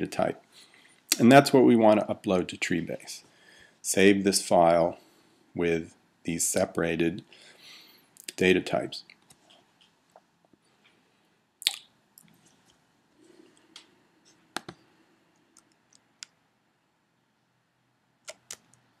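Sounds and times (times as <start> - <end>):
mouse and keyboard clicks: 14.5 - 14.8.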